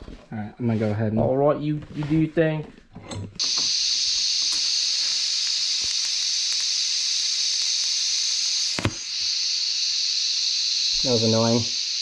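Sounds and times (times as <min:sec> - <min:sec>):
welding torch hissing: 0:03.4 - 0:12.0.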